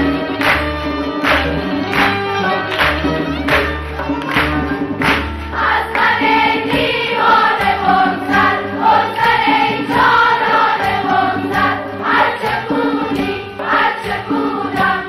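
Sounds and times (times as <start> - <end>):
girls' choir singing: 5.5 - 15.0.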